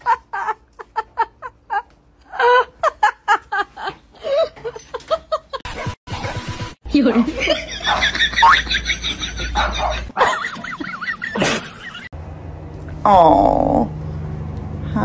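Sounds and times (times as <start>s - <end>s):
person laughing: 0.0s - 5.7s, 7.3s - 12.1s.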